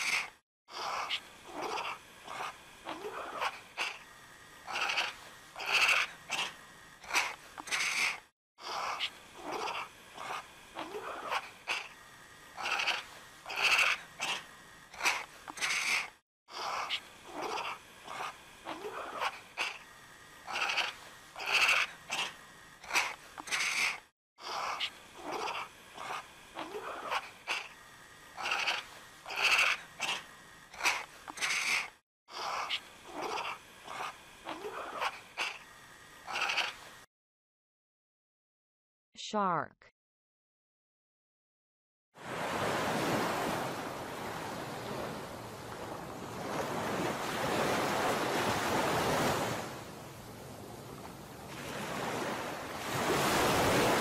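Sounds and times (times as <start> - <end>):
serval calling: 0.0 - 36.9.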